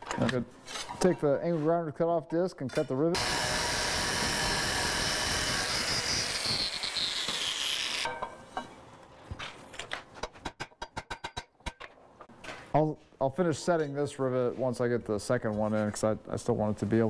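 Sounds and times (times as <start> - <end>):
angle grinder cutting metal: 3.2 - 8.1.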